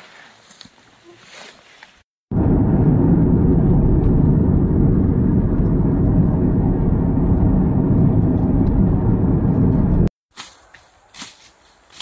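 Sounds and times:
car road and wind rumble: 0:02.3 - 0:10.1.

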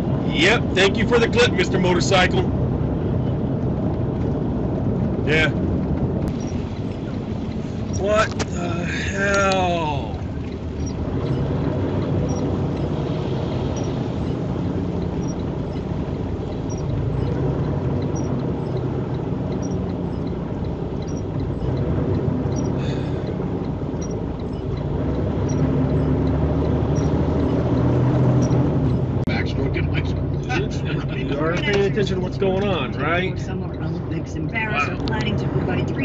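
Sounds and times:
engine drone: 0:00.0 - 0:36.0
faint ticking: 0:03.6 - 0:36.0
tyres hissing on wet pavement: 0:06.4 - 0:09.7, 0:22.8 - 0:23.3.

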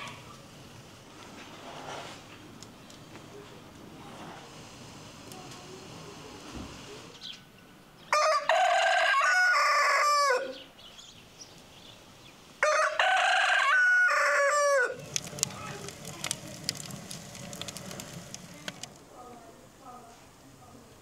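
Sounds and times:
rooster crowing: 0:08.1 - 0:10.6, 0:12.6 - 0:15.0.

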